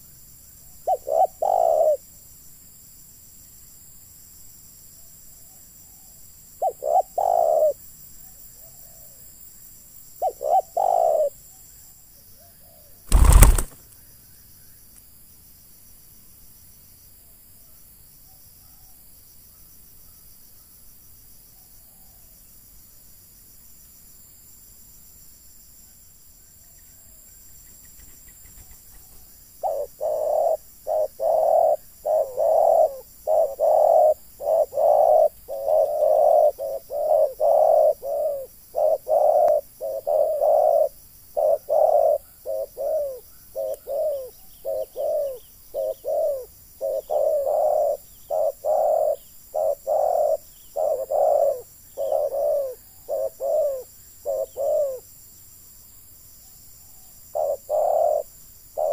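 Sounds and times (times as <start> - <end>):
doves cooing: 0.9 - 2.0, 6.6 - 7.8, 10.2 - 11.4, 13.1 - 13.8, 29.6 - 55.0, 57.4 - 58.9.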